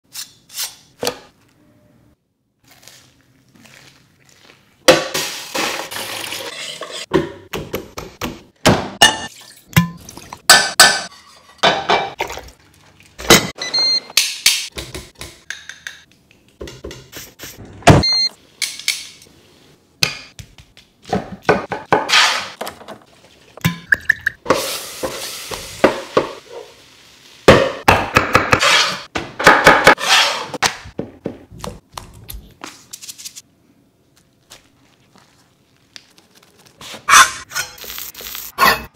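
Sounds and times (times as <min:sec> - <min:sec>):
dishes and cookware clinking: 0:05.0 - 0:07.3, 0:09.0 - 0:12.5.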